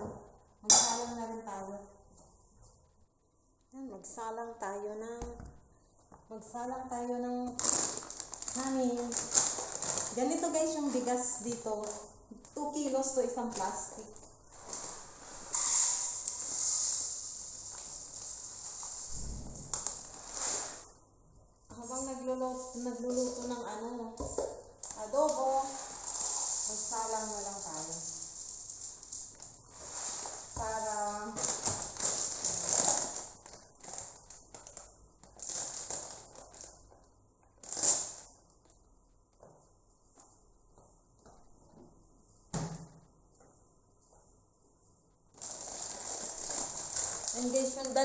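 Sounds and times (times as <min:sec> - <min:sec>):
plastic bag crinkling: 0:07.4 - 0:20.8, 0:24.8 - 0:37.0, 0:45.4 - 0:48.0
rice pouring from plastic bag: 0:14.5 - 0:20.8, 0:25.4 - 0:34.3, 0:45.4 - 0:47.9.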